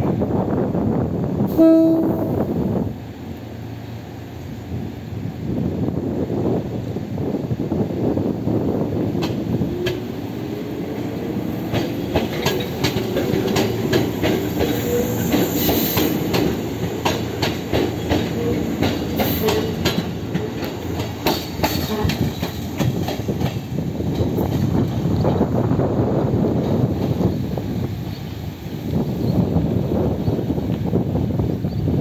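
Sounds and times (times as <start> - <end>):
electric train rumble: 0.0 - 32.0
wheels clicking over rail joints: 11.6 - 25.6.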